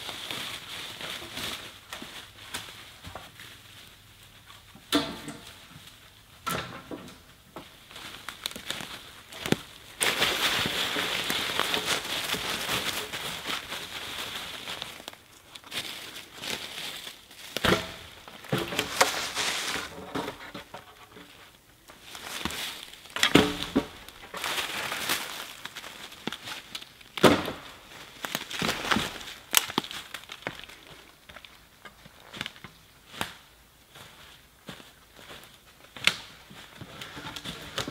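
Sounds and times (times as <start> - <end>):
dry leaves rustling: 0.0 - 4.8, 7.6 - 37.9
dry branches crackling and snapping: 7.6 - 33.5.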